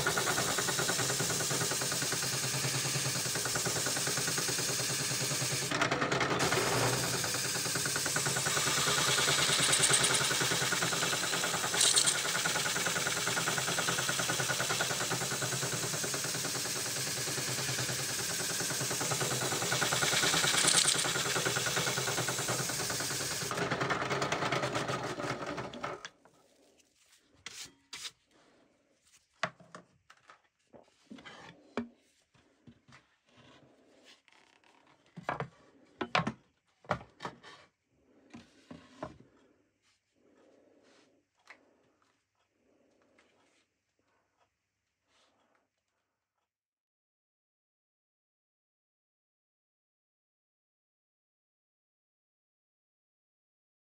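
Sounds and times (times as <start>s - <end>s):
drill running down: 0.0s - 26.0s
drum sander on wood: 0.0s - 26.0s.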